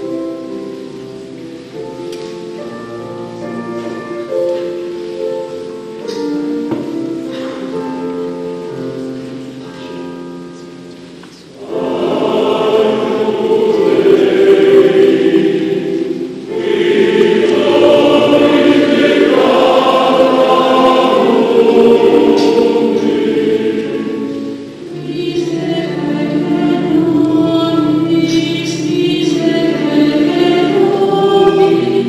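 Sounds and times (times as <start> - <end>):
men's choir singing a hymn: 11.6 - 32.0.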